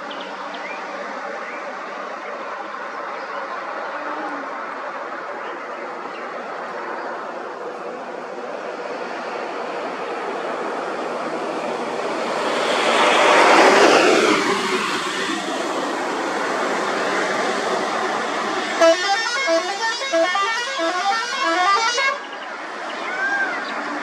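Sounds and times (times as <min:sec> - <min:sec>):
bus driving past: 0:00.3 - 0:24.0
musical horn tune: 0:18.8 - 0:22.3.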